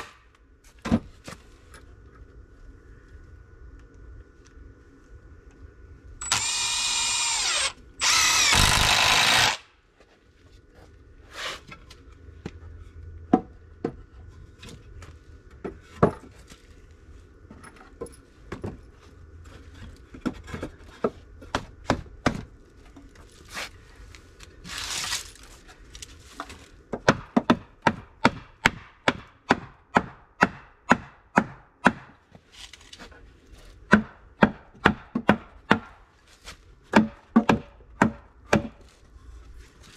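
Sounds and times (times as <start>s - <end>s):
cordless drill driving screws: 6.2s - 9.6s.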